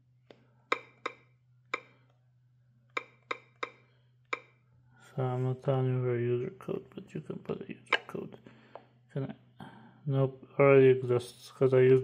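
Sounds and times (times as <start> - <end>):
faint low hum: 3.8 - 12.0.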